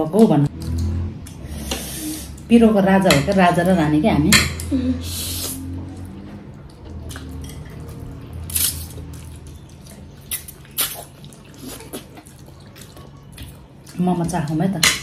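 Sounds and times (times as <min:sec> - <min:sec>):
wet chewing and mouth smacks: 0:00.5 - 0:01.4, 0:05.4 - 0:14.6.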